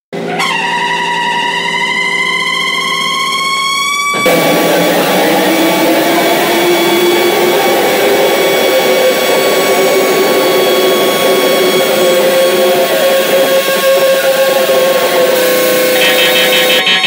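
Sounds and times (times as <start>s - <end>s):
harsh static noise: 4.2s - 16.9s
faint steady tones: 4.2s - 17.0s.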